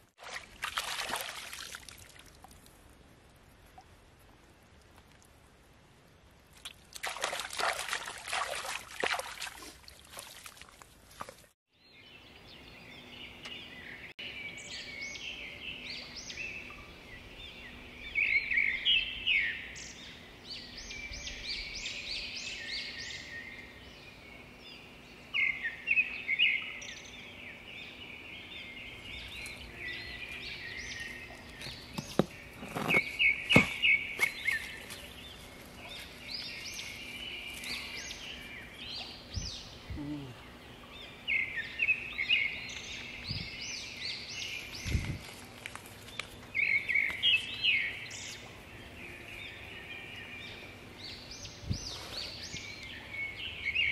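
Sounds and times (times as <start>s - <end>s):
water splashing and trickling: 0.0s - 11.6s
birds chirping: 11.8s - 53.9s
stones knocking: 31.6s - 33.8s.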